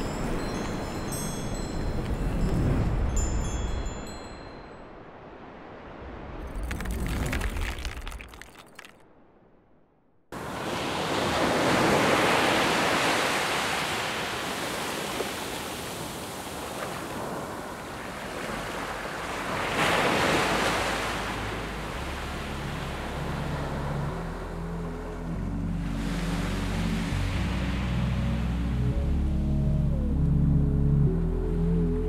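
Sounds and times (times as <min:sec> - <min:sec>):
waves breaking on beach: 0:10.4 - 0:25.0, 0:25.8 - 0:28.7
low held music notes: 0:21.4 - 0:32.0.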